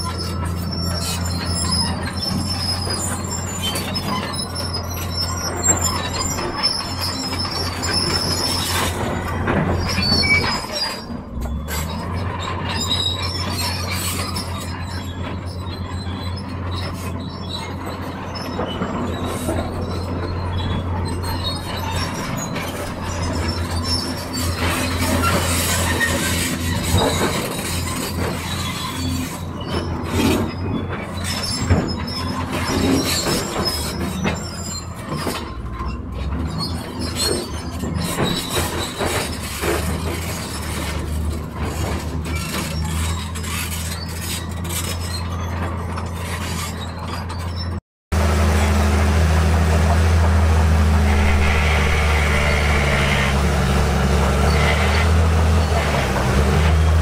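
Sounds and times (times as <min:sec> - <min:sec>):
bulldozer diesel engine under load: 0:00.0 - 0:57.0
crawler tracks clanking and squealing: 0:00.0 - 0:57.0.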